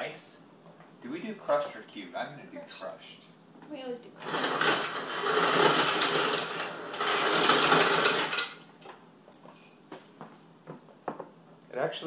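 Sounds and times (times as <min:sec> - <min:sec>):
ice dispenser grinding crushed ice: 0:04.2 - 0:08.6.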